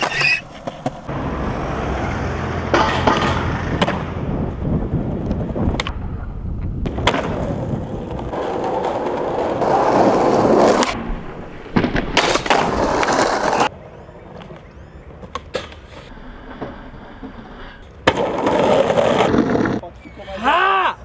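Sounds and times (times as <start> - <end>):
skateboard wheels rolling on pavement: 0.0 - 19.9
skateboard clacks: 2.7 - 4.1, 18.0 - 19.8.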